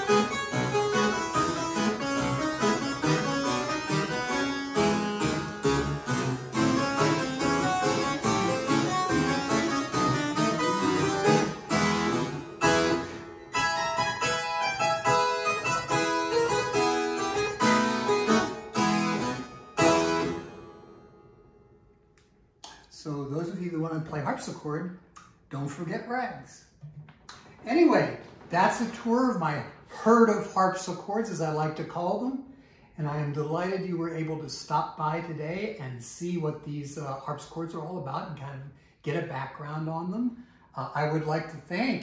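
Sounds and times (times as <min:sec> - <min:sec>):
harpsichord ragtime piece: 0:00.0 - 0:21.2.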